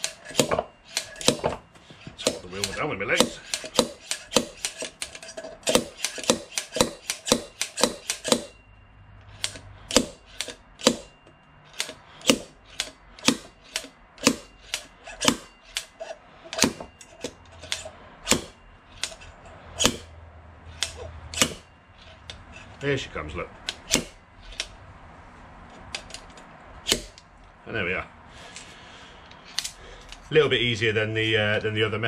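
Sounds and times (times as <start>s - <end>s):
slide hammer striking metal: 0.0s - 8.7s, 9.4s - 20.1s, 20.8s - 22.5s, 23.7s - 24.8s, 26.9s - 27.2s.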